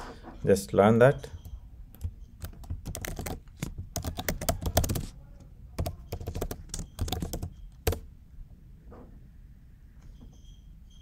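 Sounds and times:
typing on a keyboard: 1.4 - 5.2, 5.8 - 8.1.

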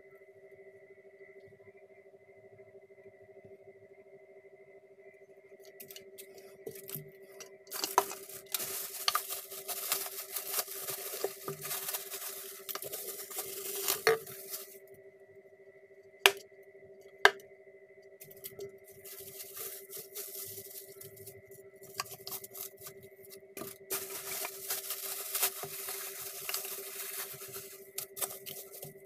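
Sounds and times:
plastic packaging crinkling: 6.7 - 7.0, 7.7 - 14.8, 18.2 - 29.0.

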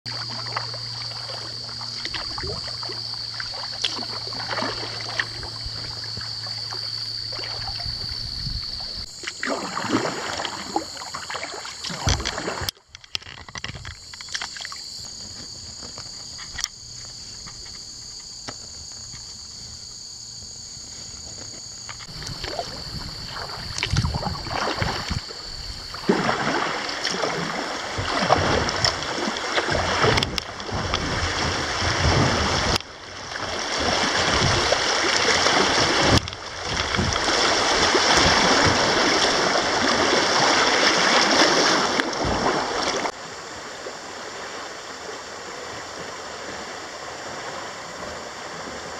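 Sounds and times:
rushing water: 0.0 - 19.3, 21.3 - 48.9
high insect buzz: 0.1 - 31.5
paddle splashing in water: 0.1 - 48.9.

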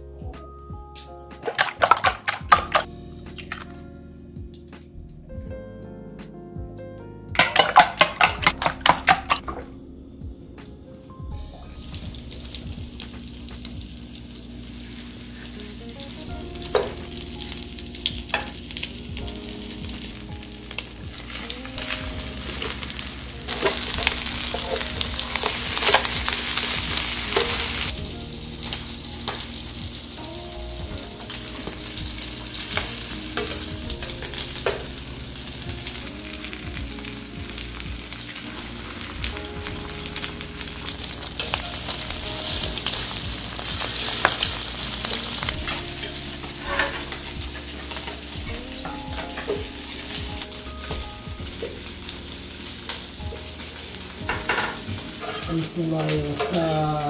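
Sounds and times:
batter sizzling in oil: 11.7 - 57.0.

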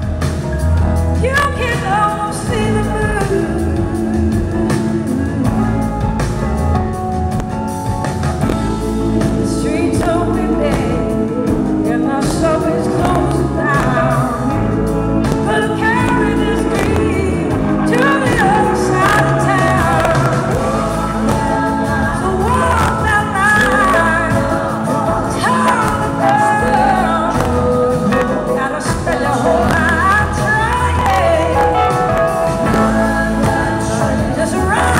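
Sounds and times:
bass: 0.0 - 34.9
drums: 0.0 - 34.9
electric guitar: 0.0 - 34.9
woman singing: 1.2 - 6.6, 8.4 - 34.9.

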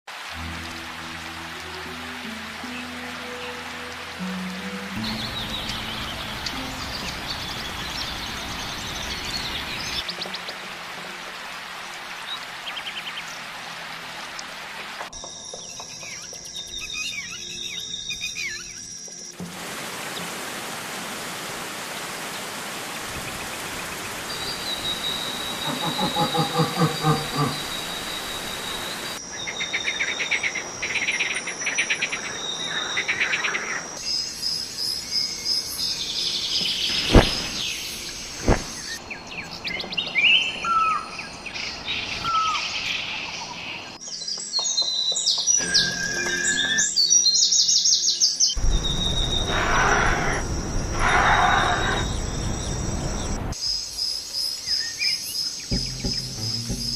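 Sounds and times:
waterfall and rapids rushing: 0.1 - 16.2, 19.3 - 34.1, 36.5 - 43.4, 48.6 - 53.6
birds chirping and calling: 23.3 - 34.0, 36.2 - 53.6.

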